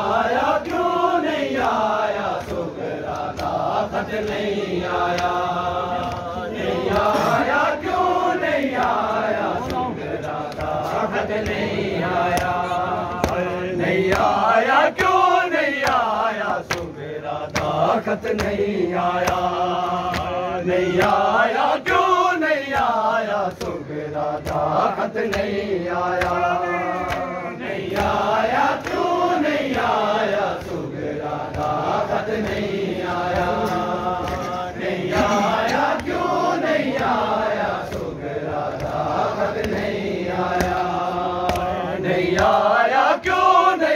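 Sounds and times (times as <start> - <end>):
men chanting: 0.0 - 43.9
chest-beating slaps: 8.6 - 15.2, 22.6 - 42.8.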